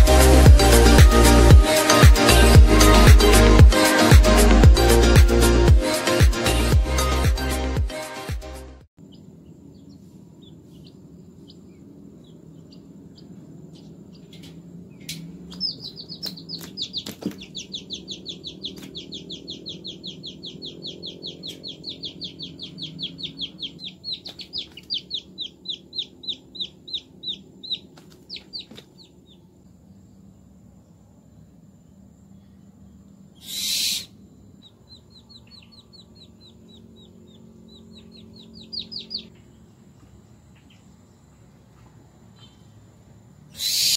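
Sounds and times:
chick distress peeps: 15.6s - 29.1s.

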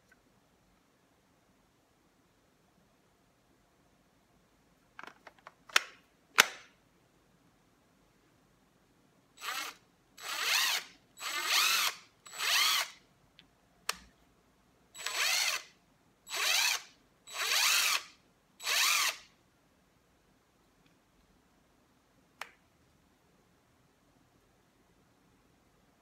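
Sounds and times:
impact wrench motor whine: 15.0s - 15.6s.

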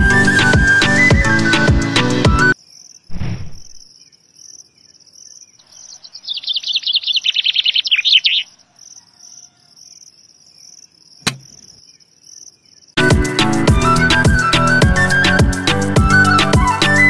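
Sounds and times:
cricket chirping: 2.6s - 13.0s
songbird trill: 2.6s - 13.0s
sharp click: 11.2s - 11.8s.

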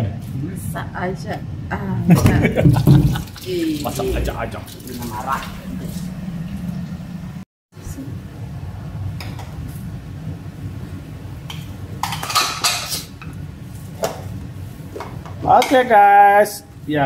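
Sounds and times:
steady low hum: 0.0s - 17.0s
utensils and dishes clinking: 11.5s - 13.3s.

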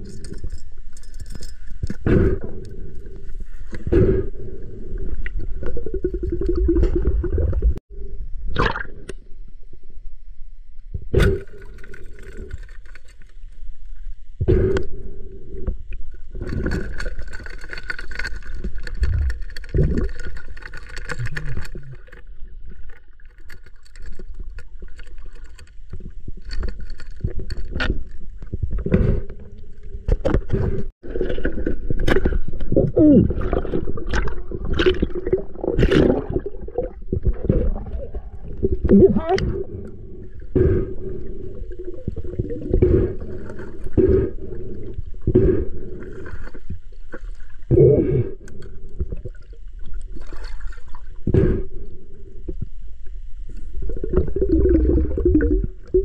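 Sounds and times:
water sloshing and gurgling: 0.0s - 9.5s, 11.0s - 56.0s.

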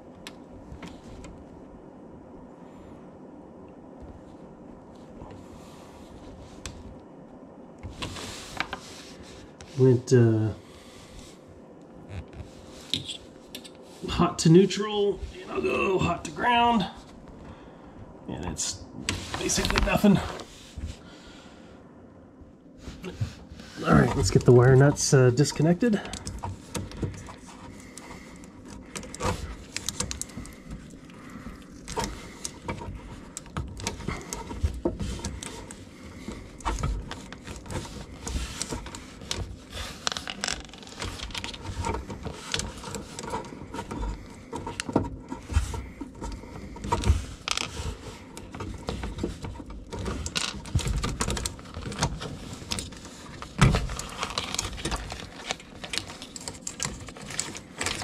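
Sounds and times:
wires clicking and rattling: 23.0s - 58.0s.

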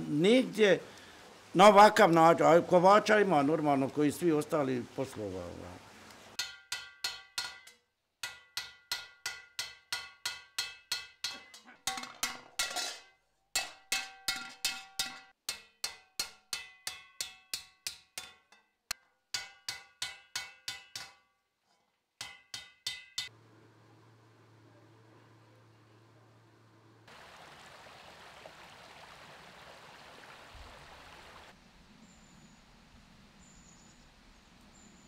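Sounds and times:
hammer striking iron on anvil: 6.4s - 13.0s, 13.6s - 18.6s, 19.3s - 21.3s, 22.2s - 23.3s.

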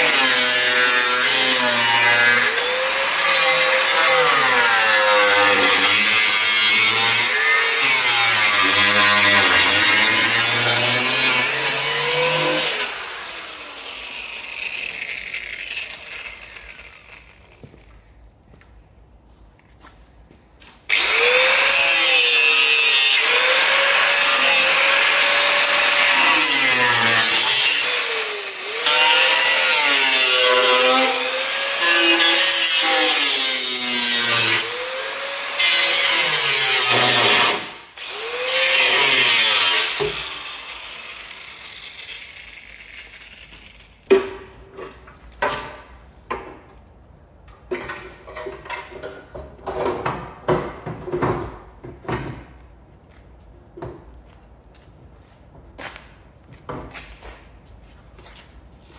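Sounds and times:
angle grinder cutting steel: 0.0s - 17.6s, 20.9s - 44.1s.

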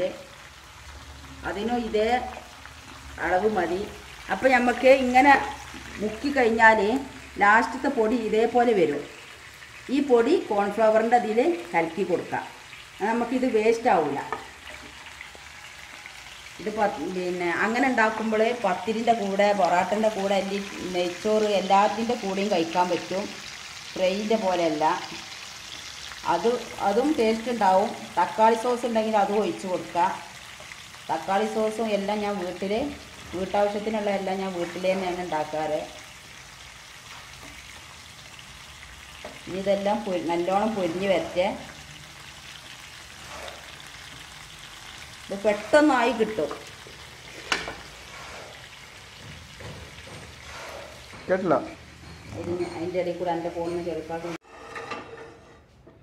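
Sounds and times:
prawns sizzling in oil: 0.0s - 54.7s
spatula stirring in pan: 42.6s - 44.3s, 47.2s - 52.2s.

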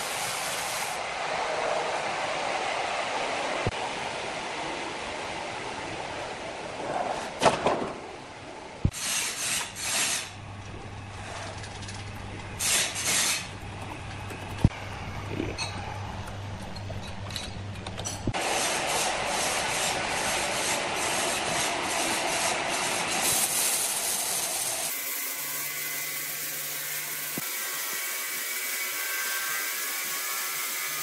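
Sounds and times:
short hissing bursts: 8.9s - 10.4s, 12.6s - 13.5s
band sawmill machinery running: 9.2s - 31.0s
low steady hum: 10.3s - 18.4s.

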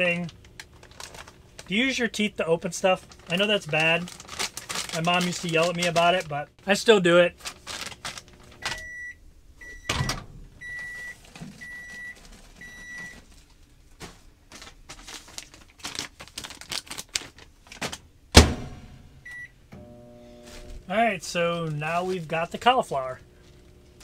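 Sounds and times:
microwave beeping: 8.5s - 13.2s, 19.2s - 20.9s.

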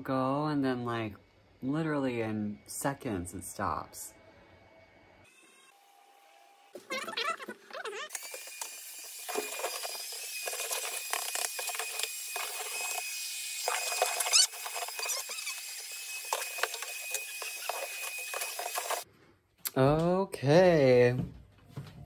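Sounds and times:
stick vacuum running: 8.1s - 19.0s.

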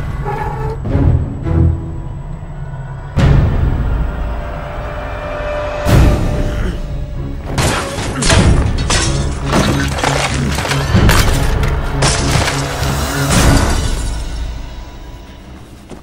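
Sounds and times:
film score low pulse: 0.0s - 7.6s
objects crashing and shattering: 7.4s - 14.3s.

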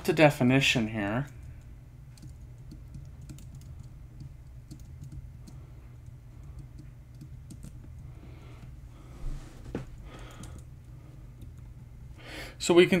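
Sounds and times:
steady low hum: 0.0s - 13.0s
keyboard keys clicking: 2.2s - 5.6s, 6.4s - 7.9s.

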